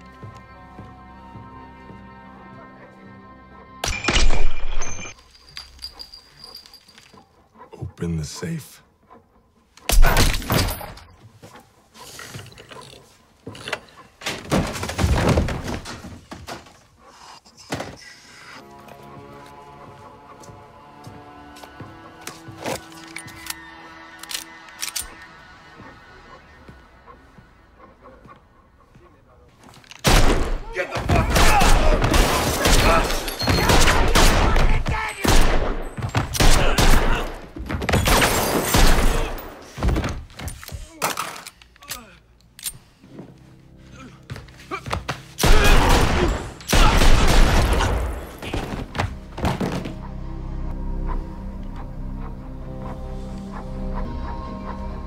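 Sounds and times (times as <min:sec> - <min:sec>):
pistol gunshots: 0:30.0 - 0:39.6, 0:45.4 - 0:48.2.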